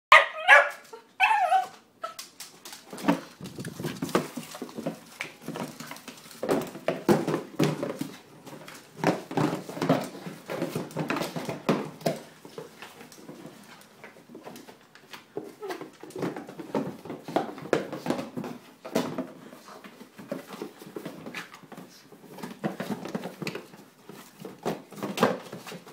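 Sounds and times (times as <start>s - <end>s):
dog barking: 0.1s - 1.7s
cardboard box scraping on wood floor: 2.9s - 7.0s.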